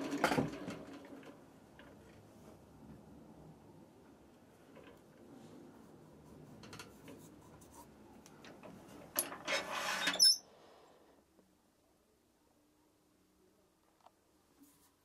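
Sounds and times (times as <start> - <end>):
handling and rubbing at a lathe: 5.0 - 8.1
metal scraping on metal: 9.5 - 10.4.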